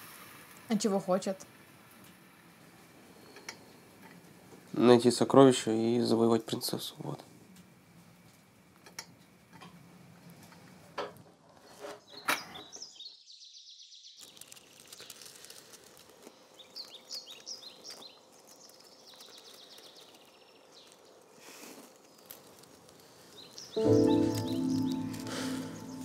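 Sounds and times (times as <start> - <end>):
birds chirping: 23.0 - 26.0.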